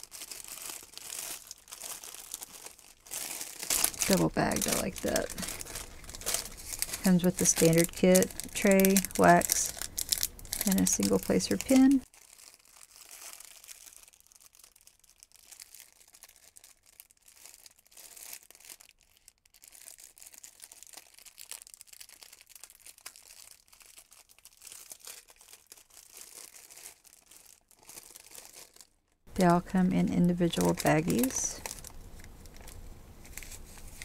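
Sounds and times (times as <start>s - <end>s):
plastic bags crinkling: 0.0s - 34.0s.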